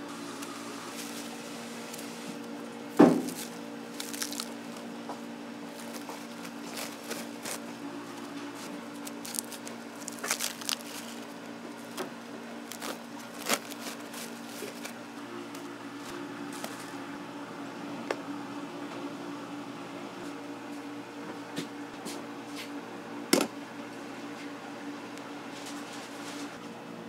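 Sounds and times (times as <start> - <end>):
kitchen equipment hum: 0.0 - 27.0
squishing rustles: 3.2 - 15.1.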